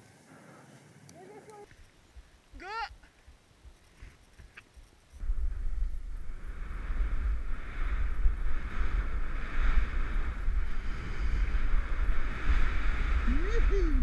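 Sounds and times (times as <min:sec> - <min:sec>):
wind buffeting microphone: 0:05.2 - 0:14.0
skis sliding over snow: 0:06.3 - 0:14.0.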